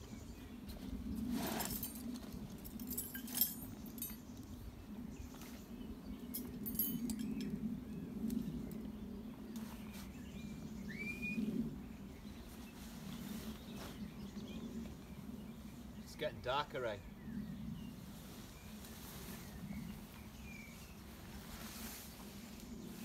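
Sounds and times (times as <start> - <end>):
rustling of camping gear: 0.5 - 11.1, 12.0 - 15.0, 17.9 - 23.0
light metallic clinks: 1.5 - 4.4, 6.2 - 8.4
rising bird chirp: 9.1 - 16.1.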